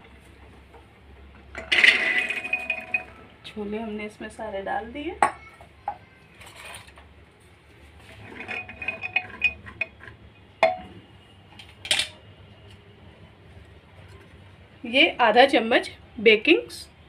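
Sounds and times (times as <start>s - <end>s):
chickpeas rattling in pot: 1.6s - 3.2s, 8.0s - 10.2s
spatula clinking and scraping pot: 8.0s - 10.8s.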